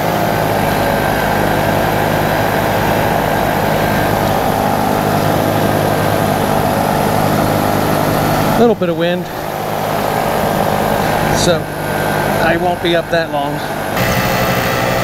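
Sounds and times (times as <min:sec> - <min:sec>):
paramotor engine droning: 0:00.0 - 0:15.0.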